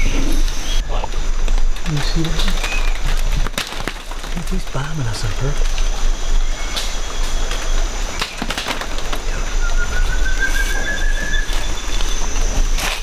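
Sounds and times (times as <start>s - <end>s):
high insect drone: 0.0s - 13.0s
leaves and branches rustling: 0.0s - 13.0s
bird whistling: 9.2s - 12.9s.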